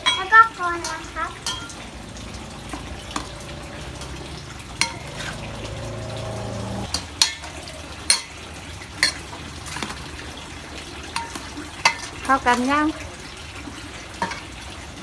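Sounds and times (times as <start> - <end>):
spoon clinking on metal bowl: 0.0 - 1.8
metal spoon stirring in bowl: 0.0 - 1.9.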